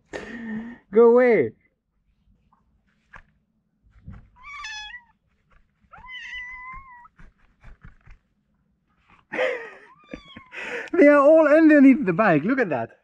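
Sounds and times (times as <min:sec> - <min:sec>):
kitten meowing: 0:04.3 - 0:05.2, 0:05.9 - 0:07.2, 0:09.9 - 0:10.6.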